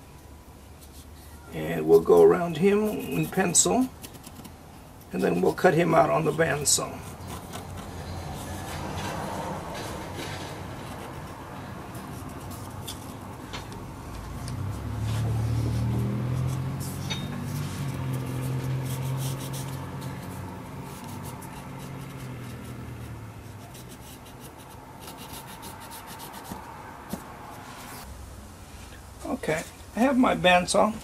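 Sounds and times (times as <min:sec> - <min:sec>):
pencil scratching on wood: 0:01.9 - 0:04.6, 0:05.2 - 0:13.4, 0:15.0 - 0:28.0.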